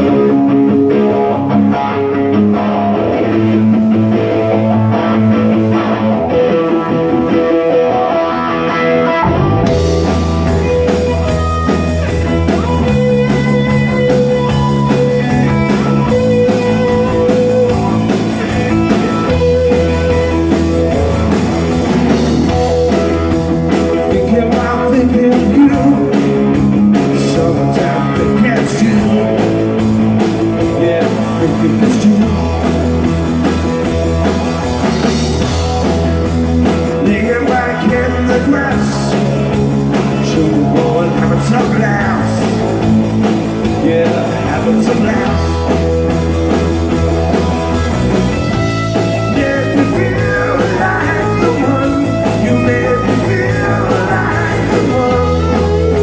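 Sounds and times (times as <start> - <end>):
bass guitar: 0.0 - 56.0
drums: 0.0 - 56.0
electric guitar riff: 0.0 - 56.0
live rock band playing: 0.0 - 56.0.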